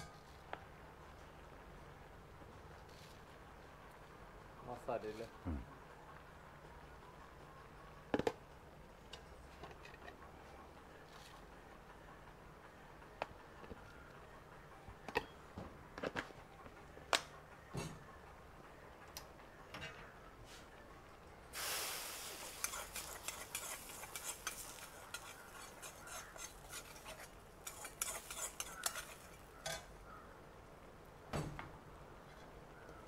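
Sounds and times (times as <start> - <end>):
food sizzling: 21.5 - 29.9
metal ladle scraping iron pan: 22.4 - 29.9.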